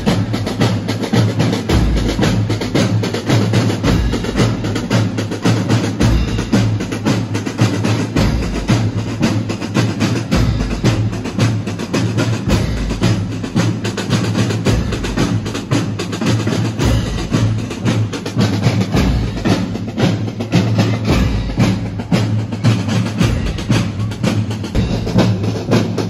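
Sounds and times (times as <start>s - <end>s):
music with drum beat and bass: 0.0s - 26.0s.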